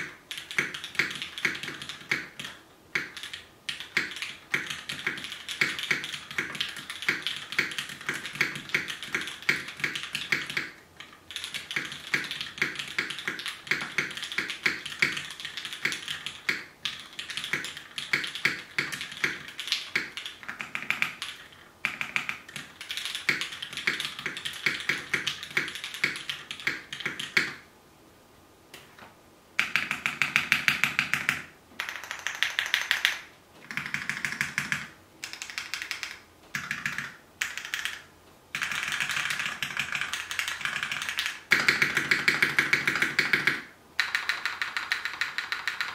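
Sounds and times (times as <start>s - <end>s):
mechanical keyboard key clacks: 29.6s - 38.0s, 38.6s - 45.9s.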